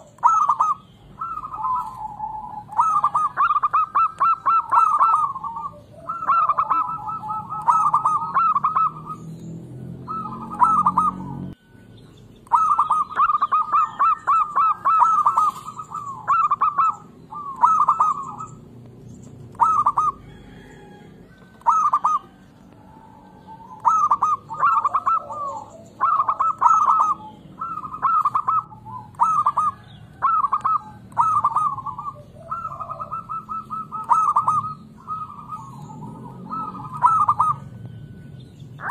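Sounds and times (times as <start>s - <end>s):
dove cooing: 0.0s - 11.7s, 12.4s - 38.9s.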